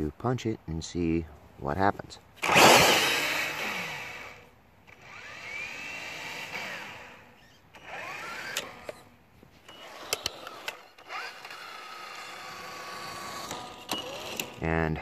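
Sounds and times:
electric motor whining: 2.4 - 14.6
sharp clicks: 10.0 - 11.6.

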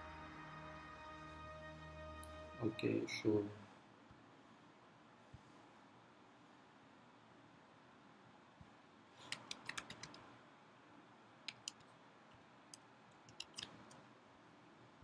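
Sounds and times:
soft laptop keystrokes: 9.2 - 10.2, 11.4 - 11.9, 12.7 - 14.0.

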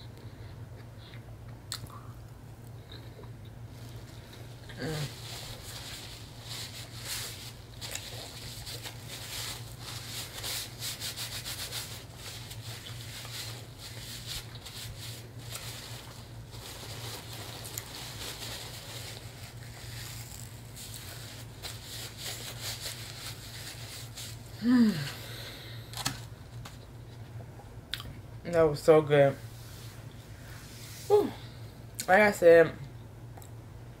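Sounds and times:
steady low hum: 0.0 - 34.0
paper napkin crinkling: 3.7 - 24.6.

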